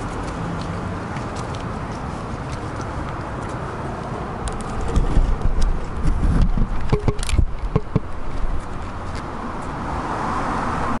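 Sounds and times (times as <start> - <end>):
camera handling knocks and clicks: 4.5 - 8.2.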